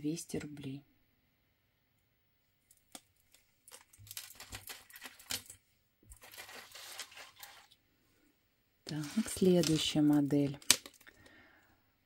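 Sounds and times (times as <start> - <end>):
earrings rustling and clicking: 2.6 - 7.8, 8.9 - 11.4.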